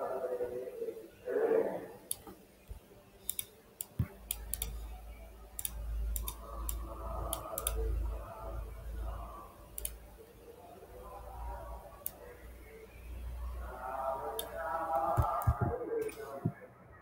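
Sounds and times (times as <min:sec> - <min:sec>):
computer mouse clicks: 0:02.0 - 0:05.0, 0:05.6 - 0:08.0, 0:09.7 - 0:10.1, 0:11.9 - 0:12.3, 0:14.3 - 0:16.6.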